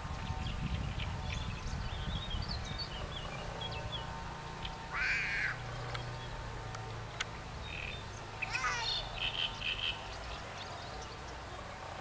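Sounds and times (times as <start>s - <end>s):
harsh goose call: 4.9s - 5.6s.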